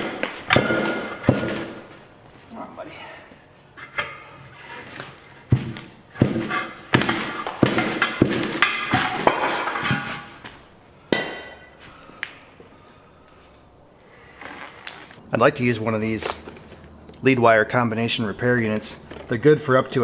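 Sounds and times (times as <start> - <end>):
tire iron clanking on metal rim: 0.0 - 2.0, 5.4 - 10.4, 11.1 - 11.8.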